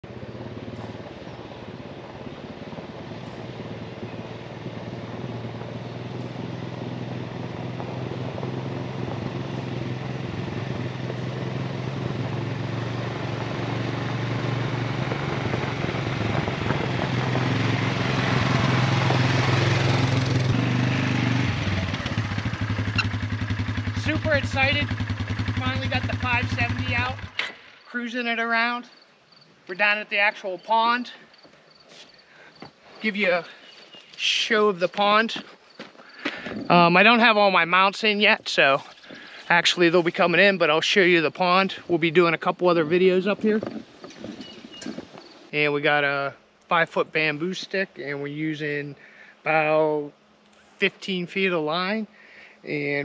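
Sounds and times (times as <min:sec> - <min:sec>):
quad bike engine running: 0:00.0 - 0:27.8, 0:42.9 - 0:45.6
tyres crunching on gravel: 0:29.7 - 0:45.6.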